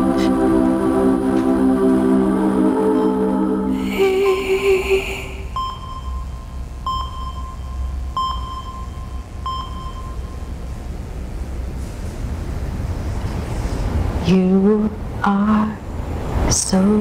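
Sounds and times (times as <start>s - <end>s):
held sung note: 0.0s - 5.7s
low steady rumble: 0.0s - 17.0s
soft bell-like pings: 5.6s - 10.6s.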